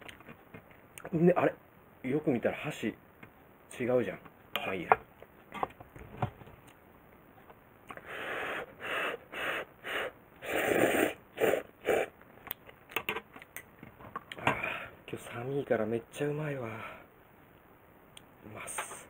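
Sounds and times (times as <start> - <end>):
noodles being slurped: 10.4 - 12.1.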